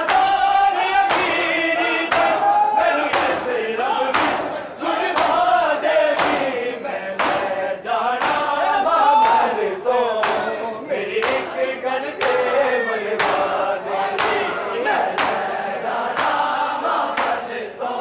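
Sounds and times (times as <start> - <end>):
crowd of men chanting: 0.0 - 18.0
chest-beating slaps: 1.0 - 9.6, 10.2 - 10.6, 11.2 - 16.5, 17.1 - 17.5.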